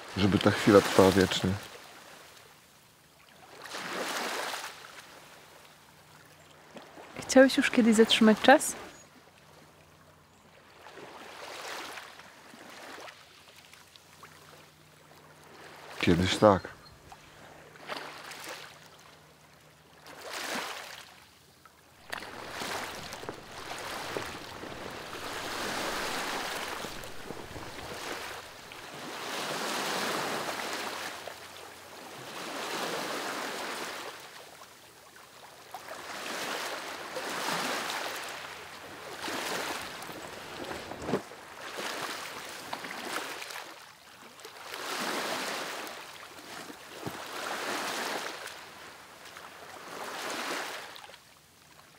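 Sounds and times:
sea waves breaking on beach: 0.0s - 2.4s, 3.4s - 5.6s, 10.6s - 19.3s, 20.0s - 21.3s, 21.9s - 51.2s.

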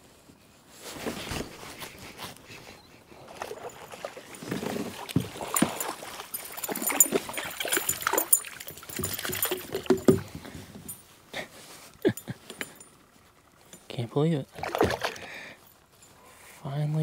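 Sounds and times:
fish thrashing and splashing: 3.1s - 10.3s, 14.5s - 15.6s.

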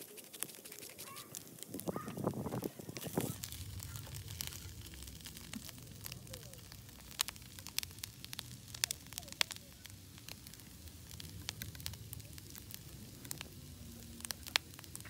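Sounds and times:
wood fire crackling and popping: 0.0s - 15.0s
stove low rumble: 0.5s - 15.0s.

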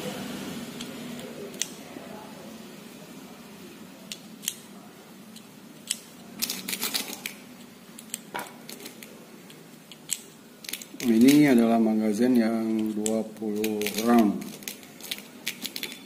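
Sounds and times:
pellets clicking into magazine: 9.9s - 11.7s, 12.6s - 16.0s
pellets clinking in metal tin: 10.7s - 11.8s, 12.4s - 16.0s.

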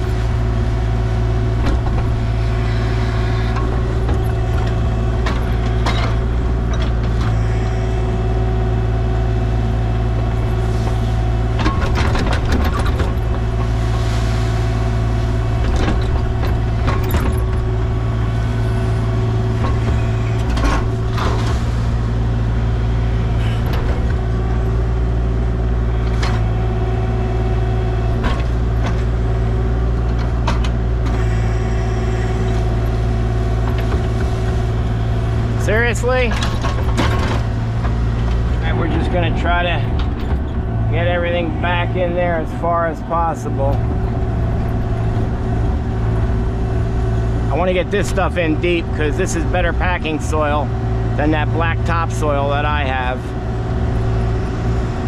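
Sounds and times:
excavator engine running: 0.0s - 55.0s
knocks and rattles: 1.4s - 2.4s, 3.3s - 7.4s, 10.2s - 13.9s, 15.4s - 25.2s, 25.9s - 31.3s, 32.4s - 41.8s.

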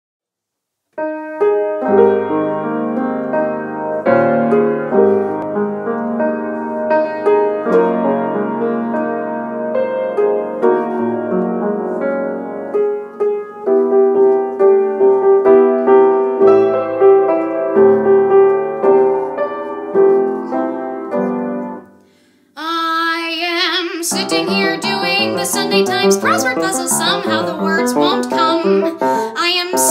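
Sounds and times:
solo piano: 0.9s - 22.2s, 23.2s - 29.9s
woman singing with vibrato: 22.6s - 29.9s.

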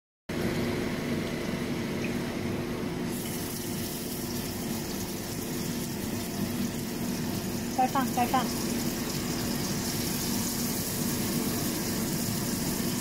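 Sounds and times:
fish sizzling in hot oil: 3.1s - 13.0s.

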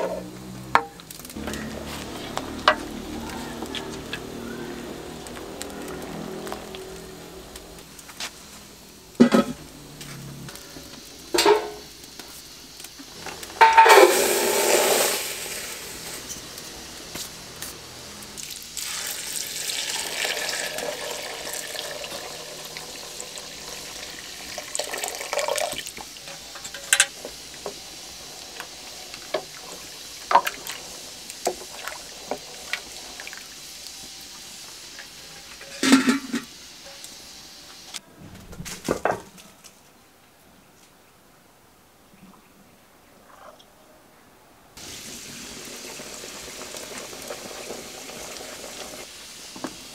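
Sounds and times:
metal pot lids clanking: 11.4s - 11.8s, 13.6s - 15.4s, 35.6s - 36.5s
water pouring into pot: 13.2s - 17.4s, 18.2s - 36.5s, 44.8s - 49.9s.

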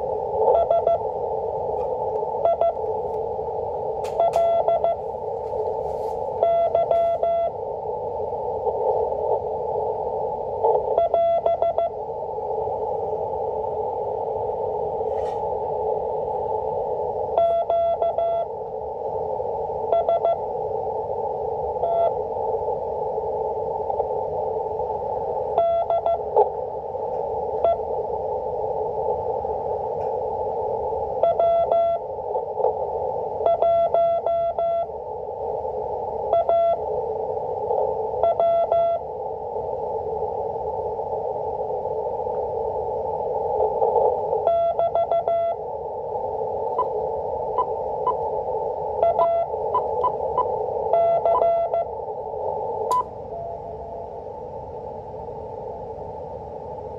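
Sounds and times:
static clicks: 0.0s - 53.2s
radio band noise hiss: 0.0s - 56.9s
morse code tone: 0.4s - 1.0s, 2.4s - 2.8s, 4.1s - 5.0s, 6.4s - 7.6s, 10.9s - 11.9s, 17.4s - 18.5s, 31.2s - 32.0s, 33.4s - 34.9s, 36.3s - 36.8s, 38.2s - 39.0s, 44.4s - 45.6s, 49.0s - 51.9s.

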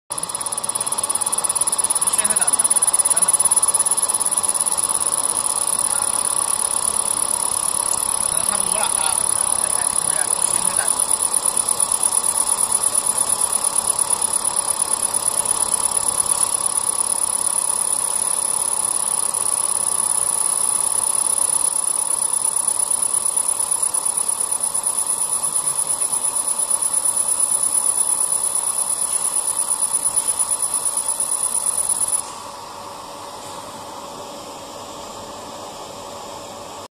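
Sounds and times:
low machine hum: 0.1s - 36.8s
laser scanner pulsing whine: 0.1s - 36.9s.

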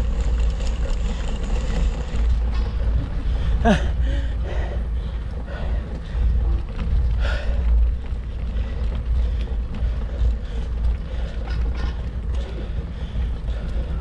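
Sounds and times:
faint ticks and rattles: 0.0s - 14.0s
wind rumbling on microphone: 0.0s - 14.0s.

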